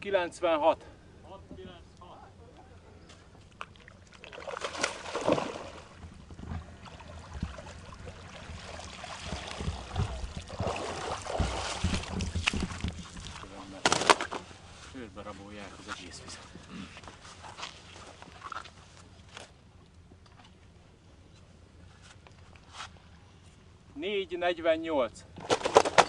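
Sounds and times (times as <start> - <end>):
water sloshing and splashing: 3.4 - 14.8.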